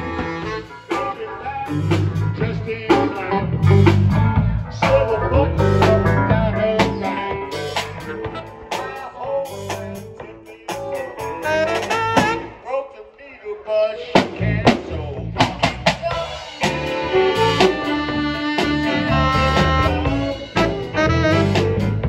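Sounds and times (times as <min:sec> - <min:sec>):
saxophones playing: 0:00.0 - 0:02.4, 0:05.3 - 0:09.0, 0:11.2 - 0:12.6, 0:16.5 - 0:22.0
snare and cymbal hits: 0:15.4 - 0:22.0.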